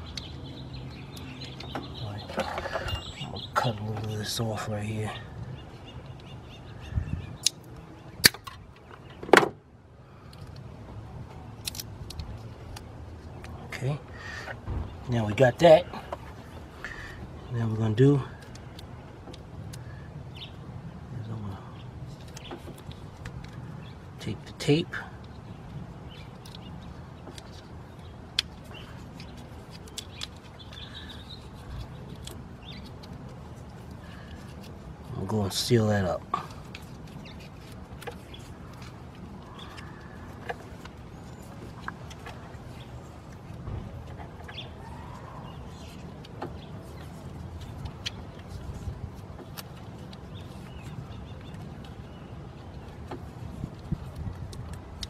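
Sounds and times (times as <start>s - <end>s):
faint bird chirps: 0.0s - 3.8s
light clicks of plastic handled: 36.3s - 44.6s, 45.7s - 55.0s.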